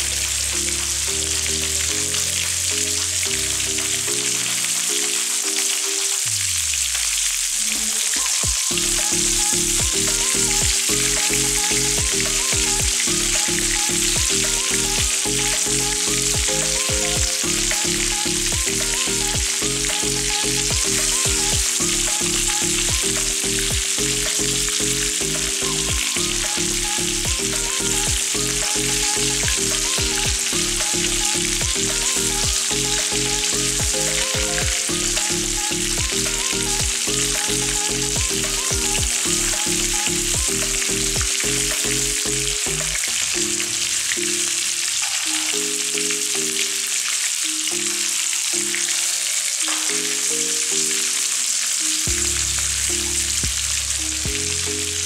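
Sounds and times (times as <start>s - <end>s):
meatballs sizzling in hot oil: 0.0s - 44.4s
background music with a beat: 8.0s - 46.7s, 51.8s - 55.0s.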